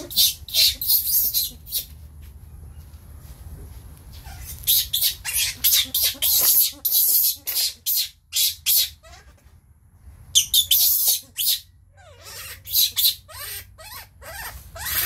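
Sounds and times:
baby monkey squealing: 0:00.0 - 0:01.9, 0:04.2 - 0:09.4, 0:10.3 - 0:15.0.

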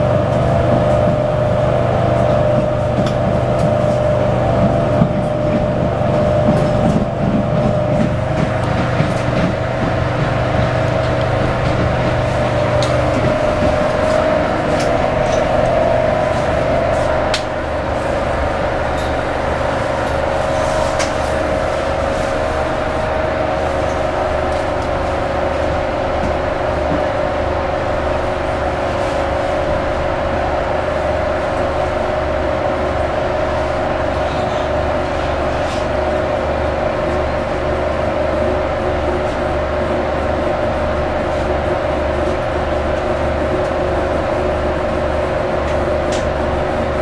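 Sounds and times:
low hum: 0:00.0 - 0:26.7
train running whine and rumble: 0:00.0 - 0:47.0.

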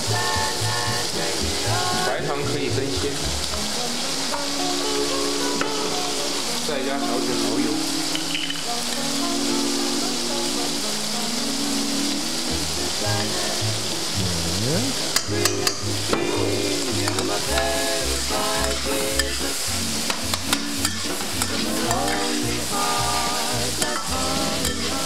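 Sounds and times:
meat sizzling in hot oil: 0:00.0 - 0:25.0
metal spatula scraping a pan: 0:20.1 - 0:22.4, 0:23.8 - 0:25.0.

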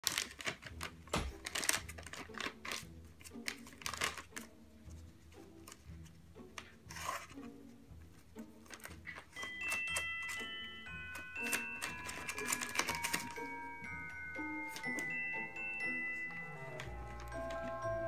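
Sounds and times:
plastic pouch crinkling: 0:00.0 - 0:04.6, 0:08.6 - 0:13.8.

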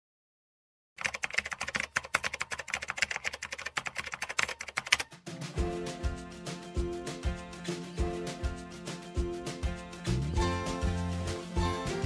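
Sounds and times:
keyboard typing clicks: 0:01.0 - 0:05.1.

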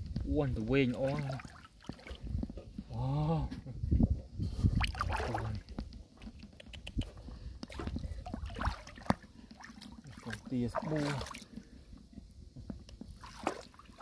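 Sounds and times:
splashing in shallow water: 0:00.7 - 0:02.4, 0:04.7 - 0:07.0, 0:07.6 - 0:12.1, 0:13.0 - 0:14.0.

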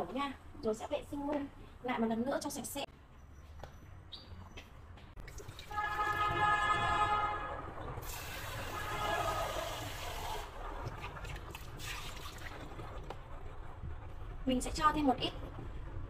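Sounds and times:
running tap water: 0:05.2 - 0:07.0, 0:07.7 - 0:14.1
water splashing in steel sink: 0:05.2 - 0:13.6.

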